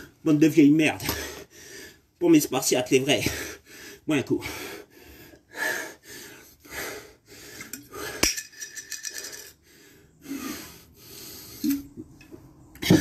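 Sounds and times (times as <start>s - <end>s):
hard breathing: 1.0s - 2.2s, 3.2s - 12.2s
person drinking: 11.6s - 12.0s.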